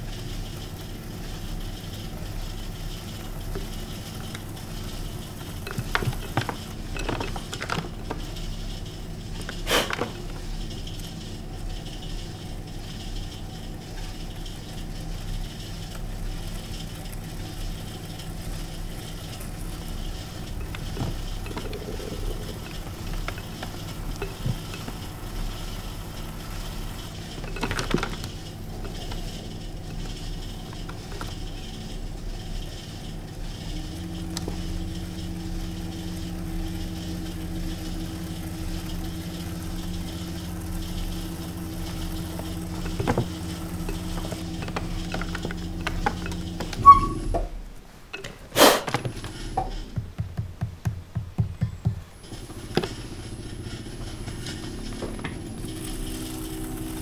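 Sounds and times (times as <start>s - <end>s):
potter's wheel motor hum: 0.0s - 57.0s.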